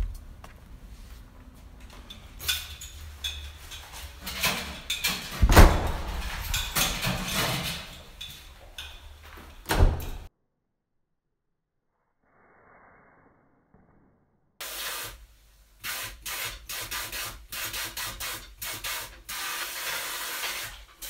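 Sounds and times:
heavy thud: 5.4s - 6.6s.

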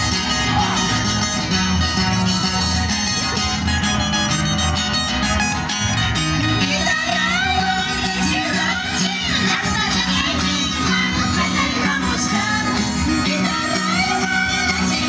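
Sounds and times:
guitar music over bass rhythm: 0.0s - 15.0s.

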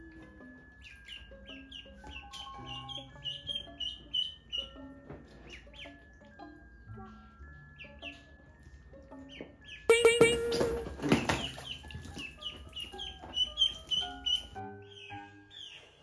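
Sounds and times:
soft background music: 0.0s - 16.0s
ducklings peeping: 0.1s - 16.0s.

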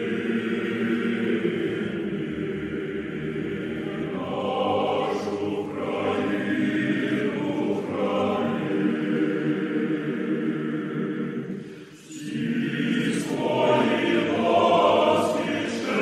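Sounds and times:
choir singing: 0.0s - 16.0s.

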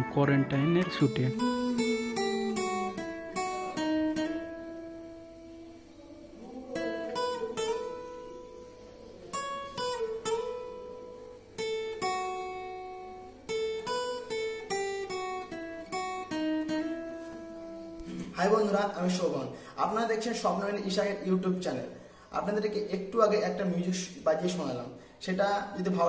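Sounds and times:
acoustic guitar melody: 0.0s - 26.0s.

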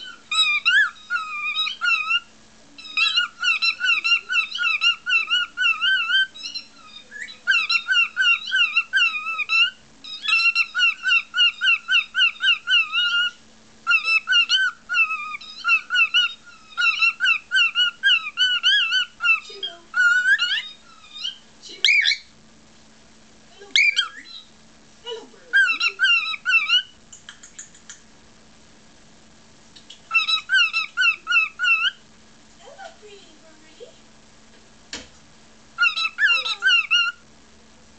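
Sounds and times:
cockatiel chirping: 0.0s - 22.3s, 23.7s - 24.5s, 25.5s - 28.0s, 29.8s - 32.0s, 35.8s - 37.2s.

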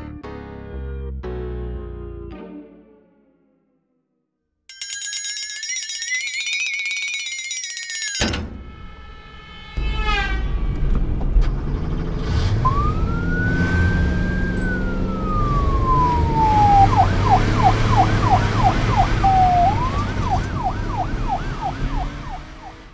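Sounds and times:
low vehicle rumble: 9.5s - 22.9s
police siren wailing and yelping: 12.6s - 22.9s.

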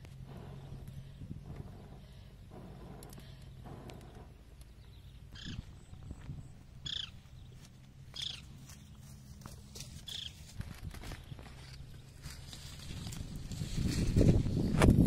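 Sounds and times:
low steady hum: 0.0s - 15.0s
animal high calls: 6.8s - 7.2s.

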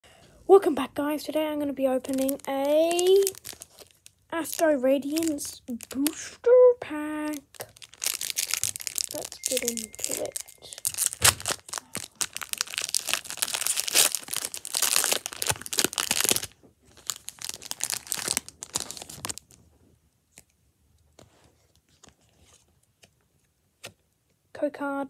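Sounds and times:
foil wrapper tearing and crinkling: 2.0s - 6.3s, 7.2s - 19.6s.

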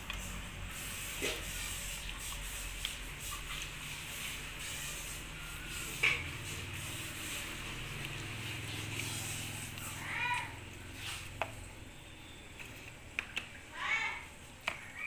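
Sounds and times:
plastic tubs clicking and knocking: 12.6s - 13.7s, 14.5s - 15.0s.

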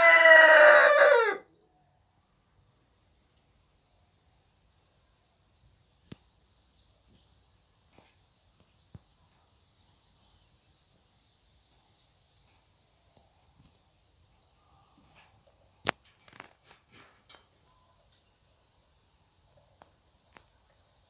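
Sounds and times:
faint high chirps: 1.4s - 2.0s, 13.2s - 13.6s, 17.6s - 18.8s.

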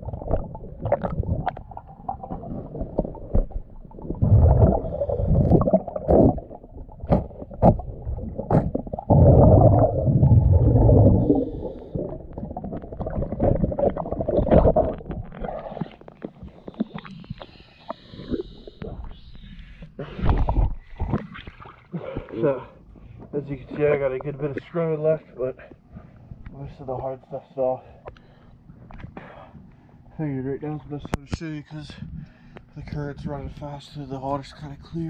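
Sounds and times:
water sloshing: 0.0s - 19.0s
exhaled air bubbling underwater: 0.0s - 22.4s.

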